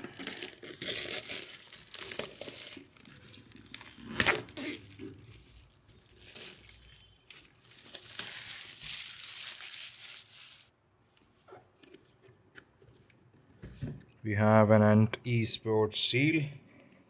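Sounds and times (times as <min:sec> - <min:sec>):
plastic wrap tearing and crinkling: 0:00.0 - 0:10.7.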